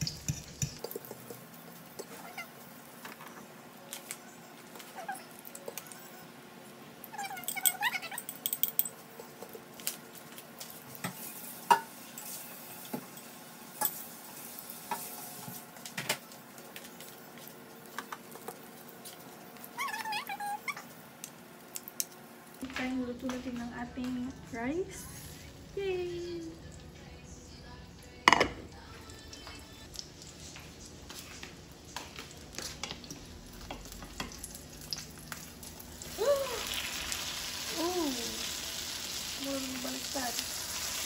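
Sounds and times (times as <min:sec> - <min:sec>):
omelette sizzling in a pan: 0:09.2 - 0:22.6, 0:32.2 - 0:41.0.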